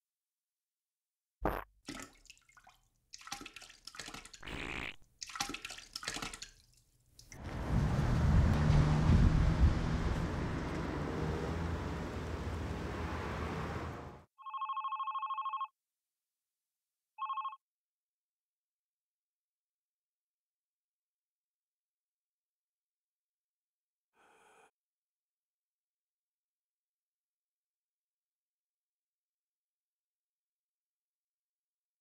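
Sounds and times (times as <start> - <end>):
desk telephone ringing: 14.4 - 15.7, 17.2 - 17.6.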